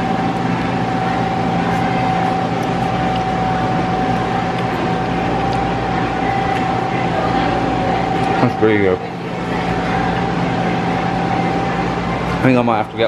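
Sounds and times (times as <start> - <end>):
constant high whine: 0.0 - 13.0
machinery hum: 0.0 - 13.0.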